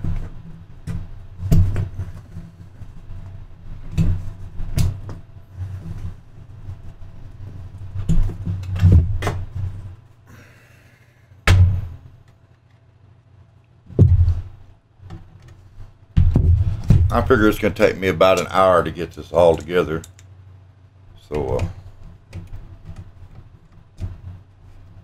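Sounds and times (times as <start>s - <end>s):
thumps and knocks inside metal case: 13.9s - 14.6s, 16.2s - 17.2s.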